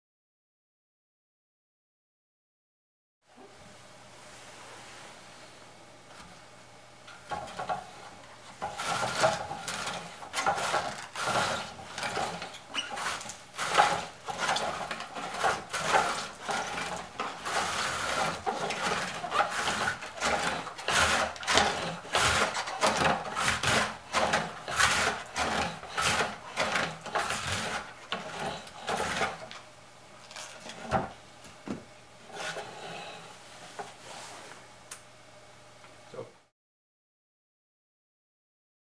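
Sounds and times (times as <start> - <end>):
cabbage shredded on mandoline: 8.6 - 29.6.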